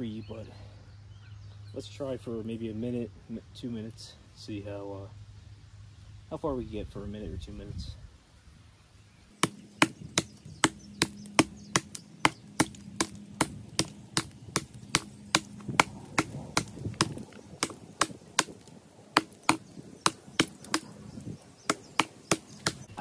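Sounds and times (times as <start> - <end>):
tomahawk chopping wood: 9.3 - 23.0.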